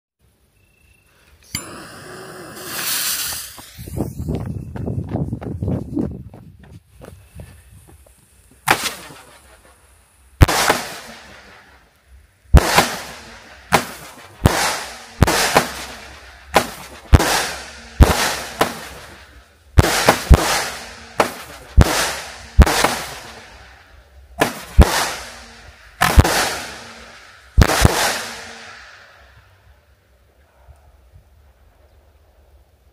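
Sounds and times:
high firework hiss: 1.1s - 4.5s, 7.1s - 30.2s
firework shots banging: 1.6s - 4.0s, 8.6s - 9.8s, 10.4s - 11.9s, 12.5s - 29.3s.

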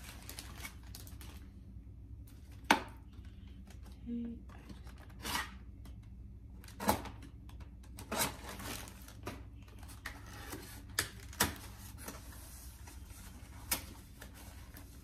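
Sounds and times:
packaging crinkling and rustling: 0.0s - 1.6s, 8.0s - 15.0s.

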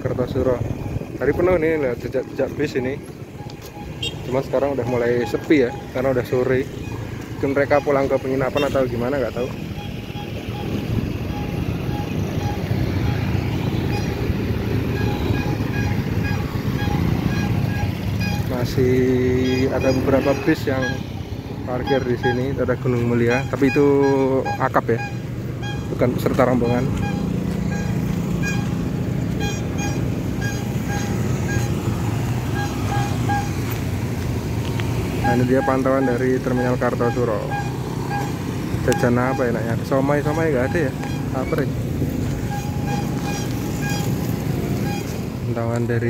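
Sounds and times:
low rumble of vehicles: 0.0s - 46.0s
short high beeps: 9.8s - 14.2s, 23.3s - 26.0s, 26.6s - 33.7s, 35.2s - 39.6s, 40.2s - 41.6s, 42.4s - 44.2s, 44.8s - 45.2s.

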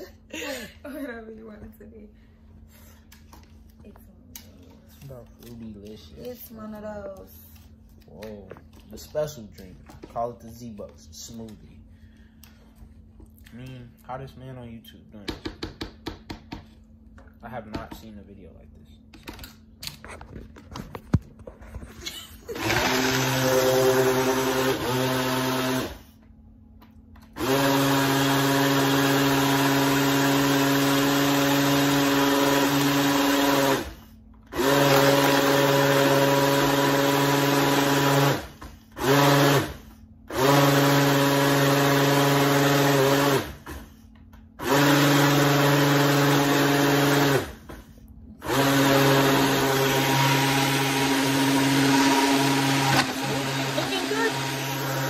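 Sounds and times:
blender motor running: 22.5s - 26.1s, 27.2s - 44.0s, 44.6s - 47.8s, 48.4s - 55.0s
blender clicks: 48.4s - 55.0s.

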